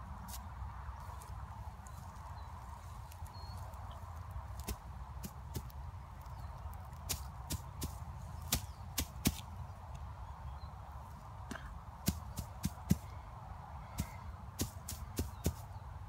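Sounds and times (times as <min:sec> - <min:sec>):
dry leaves crackling: 0:00.0 - 0:09.6, 0:13.8 - 0:15.7.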